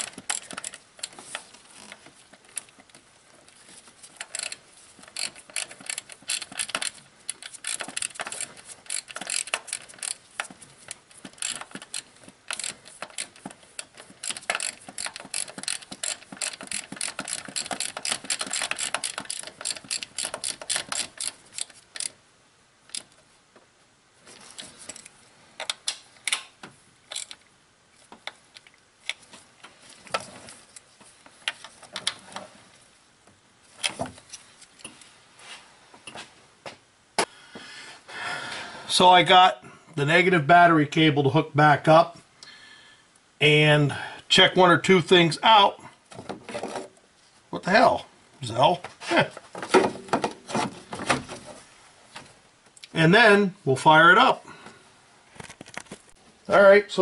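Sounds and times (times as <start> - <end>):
hand ratchet clicking: 0.0 - 1.2, 4.2 - 10.6, 11.2 - 22.2, 27.1 - 27.4.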